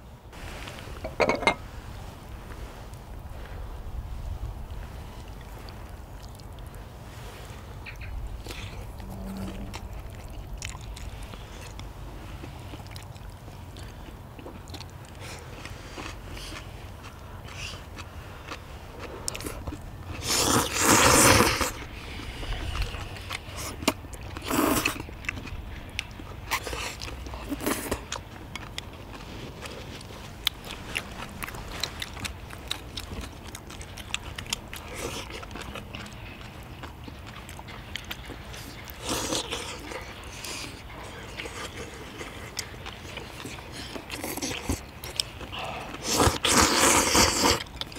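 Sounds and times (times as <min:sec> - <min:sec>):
chewing: 0:02.5 - 0:47.9
noodles slurped: 0:08.4 - 0:47.9.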